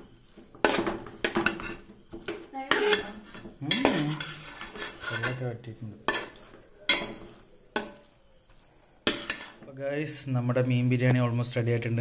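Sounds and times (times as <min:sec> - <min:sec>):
ladle scraping rice in metal pot: 0:00.0 - 0:08.2, 0:09.0 - 0:09.7.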